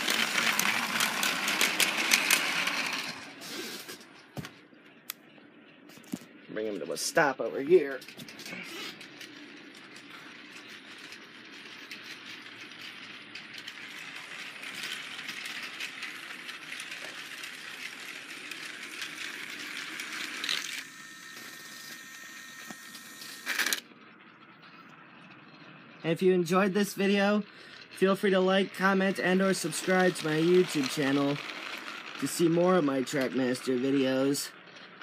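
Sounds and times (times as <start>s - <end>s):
toy train motor rattling: 0.0s - 4.3s, 6.6s - 35.0s.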